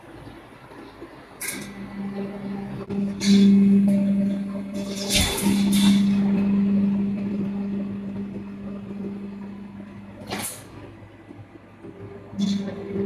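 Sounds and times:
bending machine humming: 0:00.0 - 0:13.0.

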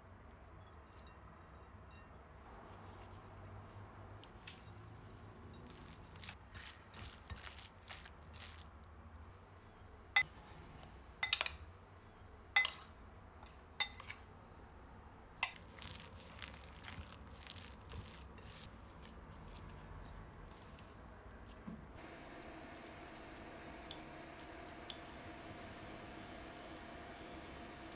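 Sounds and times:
hands squishing wet mixture: 0:05.7 - 0:08.7, 0:15.4 - 0:19.9
metal spoon clinking against bowl: 0:12.6 - 0:12.9.

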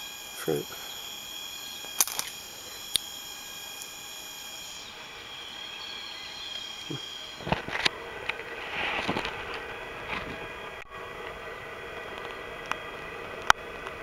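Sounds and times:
high-pitched insect chorus: 0:00.0 - 0:10.0.

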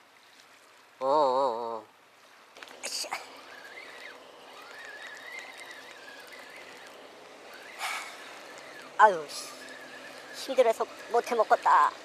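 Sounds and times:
fishing reel gear whine: 0:02.6 - 0:12.0.

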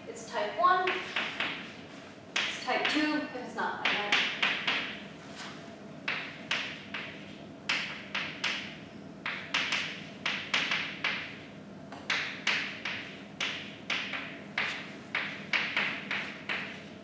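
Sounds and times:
chalk tapping on blackboard: 0:00.9 - 0:01.7, 0:03.8 - 0:05.0, 0:06.1 - 0:11.4, 0:12.0 - 0:16.8.

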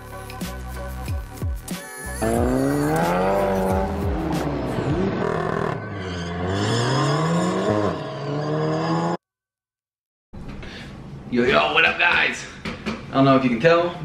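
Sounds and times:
car engine accelerating hard: 0:02.2 - 0:08.1.

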